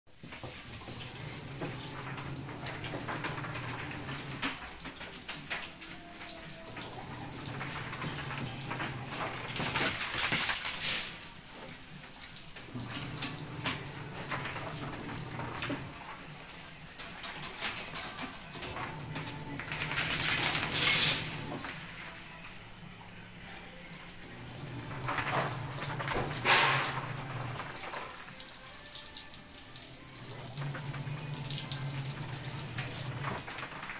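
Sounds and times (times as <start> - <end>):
water splashing on floor: 0.1 - 22.2, 23.9 - 33.9
hose water spraying: 0.2 - 22.2.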